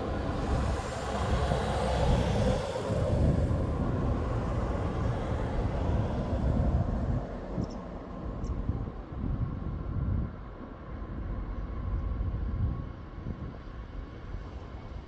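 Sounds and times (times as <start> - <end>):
train passing: 0.0 - 8.1.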